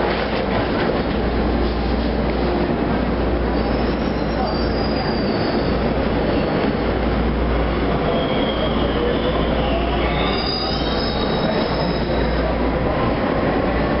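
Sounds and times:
subway car wheels rumbling: 0.0 - 14.0
high wheel squeals: 3.5 - 6.8, 8.0 - 12.6.

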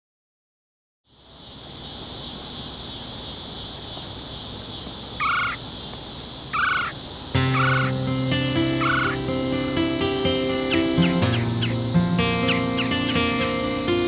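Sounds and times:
high-pitched insect chorus: 1.1 - 14.0
short animal calls: 5.2 - 5.6, 6.5 - 7.9, 8.8 - 9.2.

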